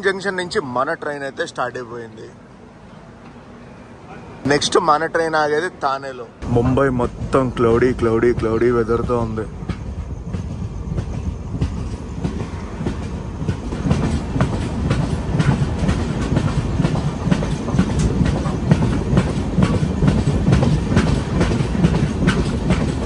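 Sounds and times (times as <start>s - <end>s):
train wheel rumble: 0.0s - 23.0s
wheels clicking over rail joints: 6.4s - 23.0s.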